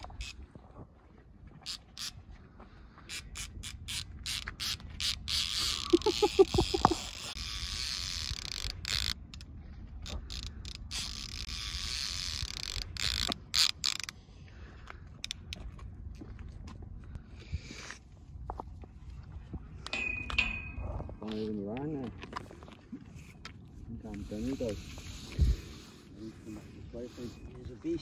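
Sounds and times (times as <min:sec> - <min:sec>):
fishing reel clicking and ratcheting: 0:00.0 - 0:00.4, 0:01.6 - 0:02.2, 0:03.1 - 0:14.2
fishing reel whirring: 0:00.0 - 0:00.4, 0:01.6 - 0:02.2, 0:03.1 - 0:14.1
rattling pulses: 0:03.3 - 0:09.4.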